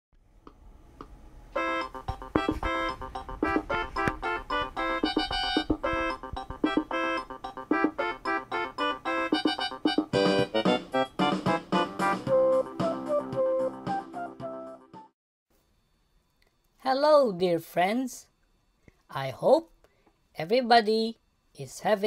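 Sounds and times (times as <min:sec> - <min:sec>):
electronic keyboard tune: 0:01.5 - 0:15.1.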